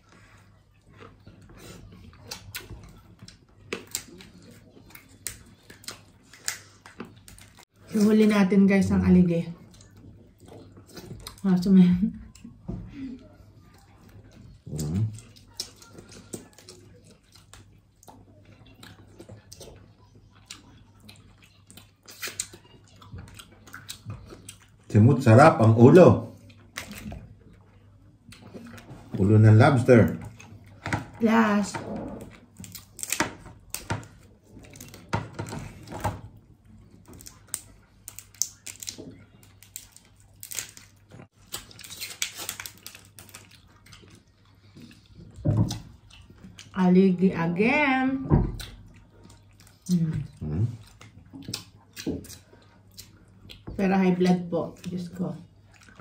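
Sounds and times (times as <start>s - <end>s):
chewing: 0.0s - 8.0s, 9.6s - 24.9s, 26.3s - 29.2s, 31.8s - 46.8s, 48.5s - 53.7s, 54.6s - 56.0s
eating sounds: 0.0s - 8.0s, 9.5s - 46.9s, 48.5s - 53.7s, 54.6s - 56.0s
lobster shells cracking: 32.5s - 35.6s, 37.0s - 43.8s.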